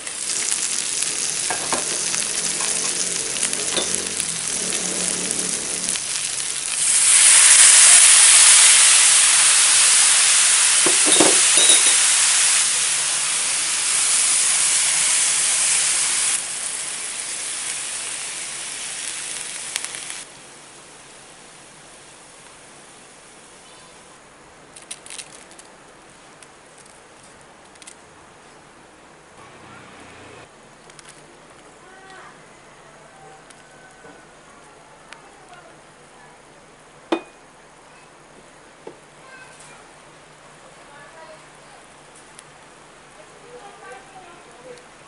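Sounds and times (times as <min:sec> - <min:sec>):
meat and onions sizzling in oil: 0:00.0 - 0:24.0.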